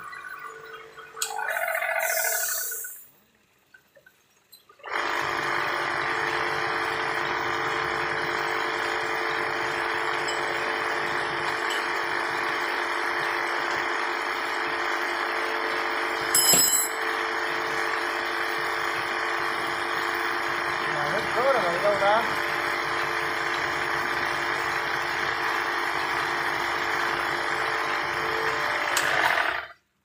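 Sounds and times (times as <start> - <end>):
short hissing burst: 2.0 - 3.1
machine motor humming: 4.8 - 16.4, 17.0 - 29.7.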